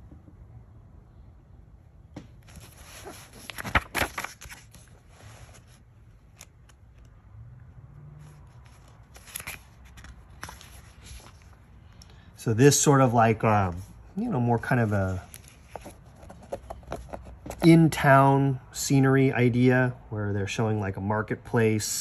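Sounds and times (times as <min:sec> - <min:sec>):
book pages rustling: 0:02.4 - 0:07.2, 0:08.2 - 0:11.7, 0:14.6 - 0:17.7
page snapping: 0:03.4 - 0:04.7.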